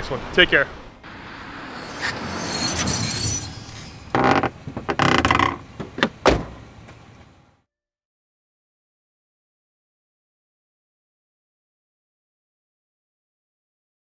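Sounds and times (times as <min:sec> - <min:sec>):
whoosh: 0:01.2 - 0:04.1.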